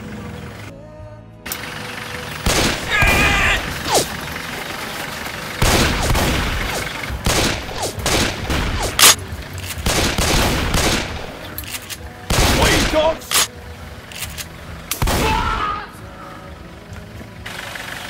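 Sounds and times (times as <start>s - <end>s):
gunshots: 2.4s - 4.2s, 5.6s - 11.6s, 12.2s - 13.5s, 14.3s - 15.8s.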